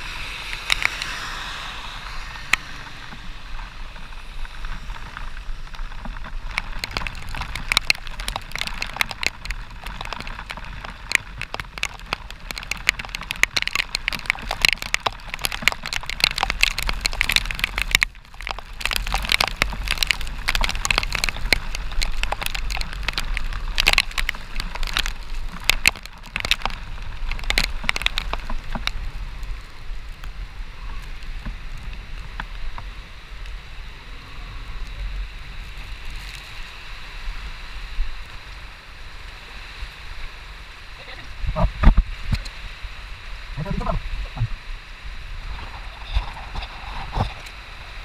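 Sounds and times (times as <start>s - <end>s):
low wind rumble and hiss: 0.0s - 48.0s
raindrop ticks: 0.4s - 1.2s, 2.0s - 30.4s, 34.9s - 36.7s, 41.0s - 42.6s, 43.6s - 44.6s.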